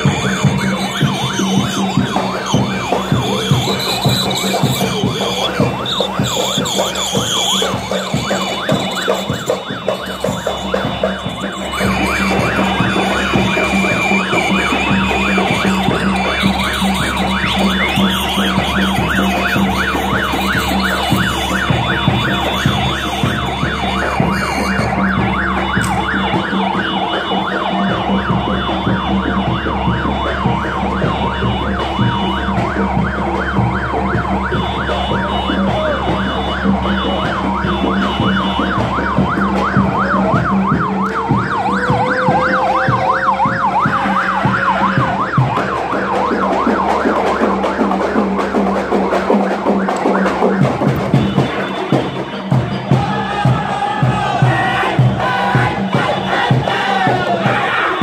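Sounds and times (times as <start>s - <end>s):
electronic siren yelping: 0.0s - 51.5s.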